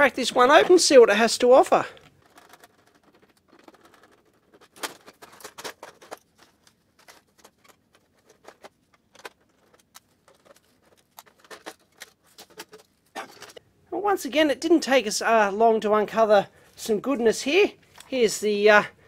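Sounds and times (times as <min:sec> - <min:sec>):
plastic printer casing clicks and rattles: 0:02.0 - 0:13.6.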